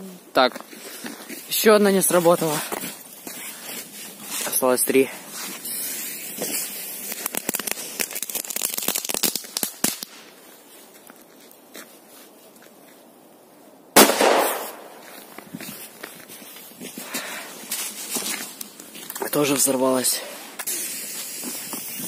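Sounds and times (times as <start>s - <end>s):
fuse sputtering and crackling: 6.4s - 9.7s
firecracker bang: 14.0s - 15.1s.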